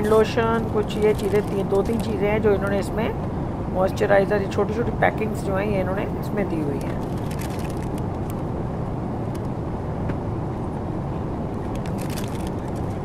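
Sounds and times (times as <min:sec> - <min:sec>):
airliner cabin drone: 0:00.0 - 0:13.0
paper wrapper rustling: 0:00.9 - 0:02.2, 0:06.8 - 0:08.4, 0:11.7 - 0:13.0.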